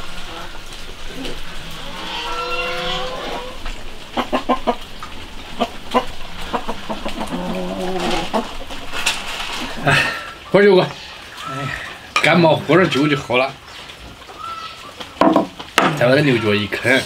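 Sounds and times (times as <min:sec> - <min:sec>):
farm animal drawn-out call: 0:00.1 - 0:08.8.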